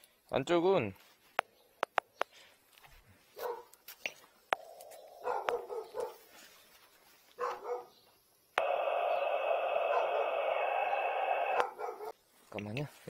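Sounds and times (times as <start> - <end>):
dog barking: 3.4 - 3.8, 5.2 - 6.3, 7.4 - 8.0, 9.8 - 10.5, 11.5 - 12.2
steady hiss with high whine: 8.2 - 11.7.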